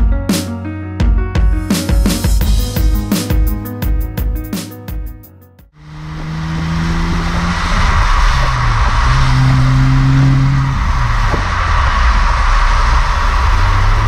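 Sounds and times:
car exhaust while driving: 5.8 - 14.0
wind and road rush: 5.8 - 14.0.

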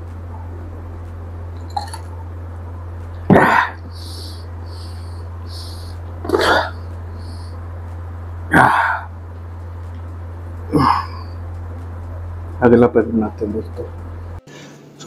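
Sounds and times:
steady low hum: 0.0 - 15.0
hissing breaths: 3.3 - 7.6.

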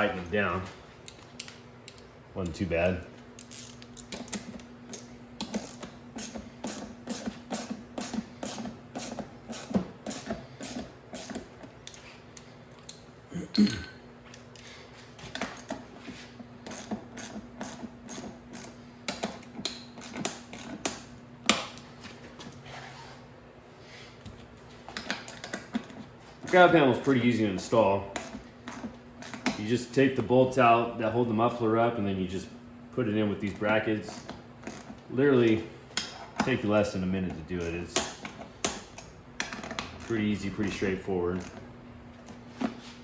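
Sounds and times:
socket ratchet clicking: 3.4 - 13.0.

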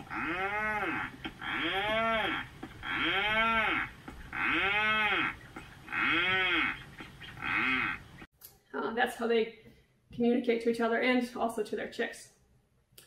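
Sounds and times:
seabird low mooing call: 0.0 - 8.3.

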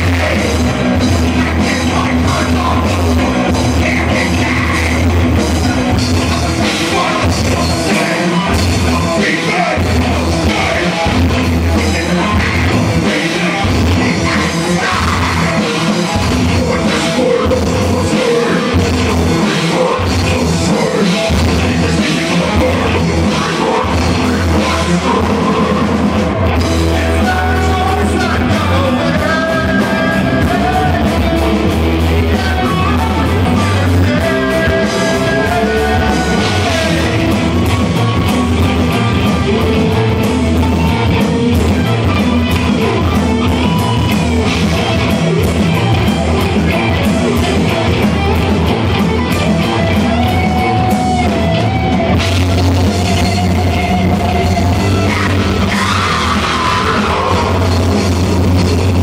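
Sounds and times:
person singing: 0.0 - 49.0, 52.3 - 59.0
drum kit: 0.0 - 59.0
electric guitars: 0.0 - 59.0.

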